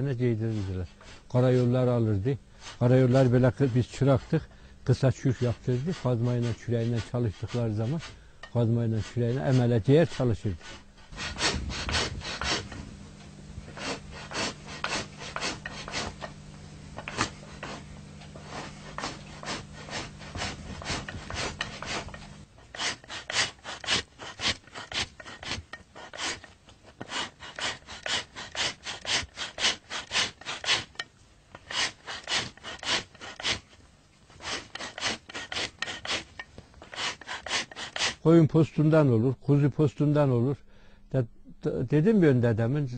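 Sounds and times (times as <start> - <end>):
hide being scraped by hand: 0.0 - 2.0, 2.6 - 38.2
low steady hum: 0.0 - 42.9.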